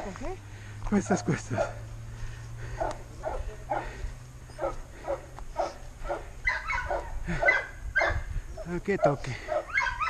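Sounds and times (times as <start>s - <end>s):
person panting hard: 2.0s - 6.4s, 7.1s - 8.5s.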